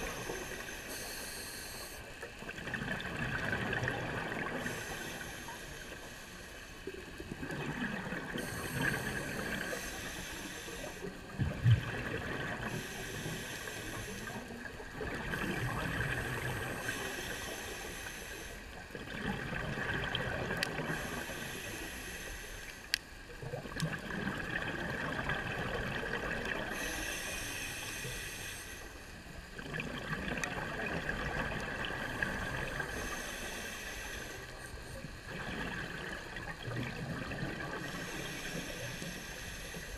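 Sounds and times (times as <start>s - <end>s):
regulator inhale hiss: 0.0s - 2.3s, 4.4s - 7.0s, 8.3s - 11.3s, 12.6s - 18.9s, 20.8s - 23.1s, 26.5s - 29.4s, 32.2s - 35.1s, 37.6s - 39.9s.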